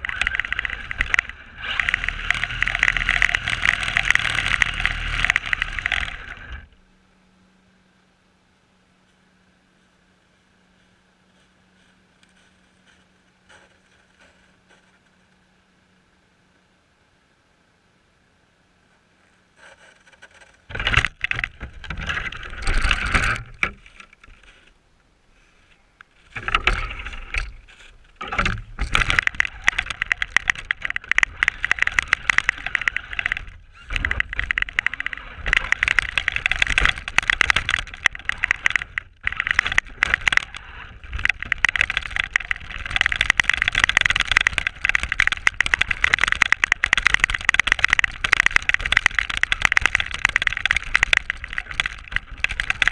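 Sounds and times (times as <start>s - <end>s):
chassis rattling: 0.0s - 6.7s, 20.7s - 24.4s, 26.2s - 52.9s
rc car driving through snow: 0.0s - 6.7s, 26.3s - 52.9s.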